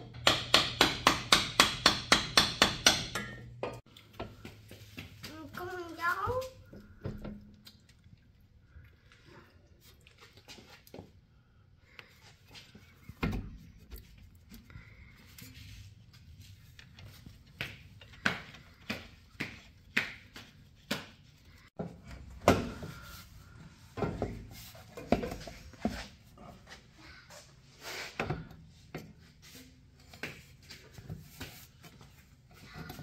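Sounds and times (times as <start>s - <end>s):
hand tools knocking and clunking: 0.0s - 4.6s, 21.8s - 23.2s, 23.9s - 26.1s.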